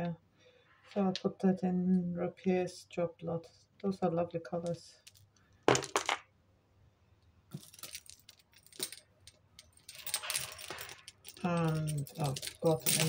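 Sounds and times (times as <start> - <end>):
jewellery clinking and jangling: 7.5 - 13.0.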